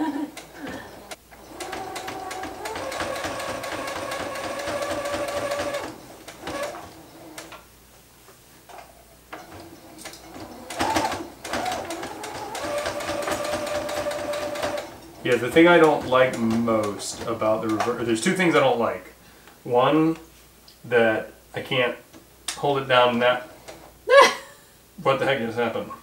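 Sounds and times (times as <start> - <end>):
sewing machine running: 0.4 - 7.6, 9.4 - 18.2.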